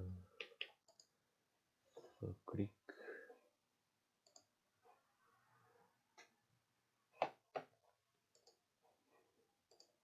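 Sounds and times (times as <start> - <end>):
computer mouse clicking: 0.4 - 1.1, 4.2 - 4.5, 8.3 - 8.6, 9.7 - 10.0.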